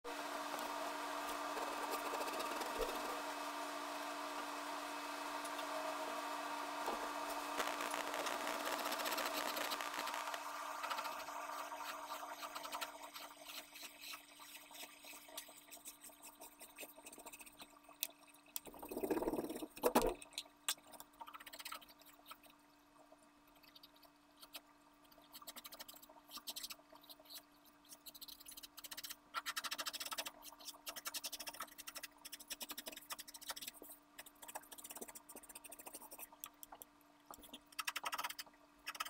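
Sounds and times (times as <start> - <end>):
machine-like hum: 0.1 - 15.8.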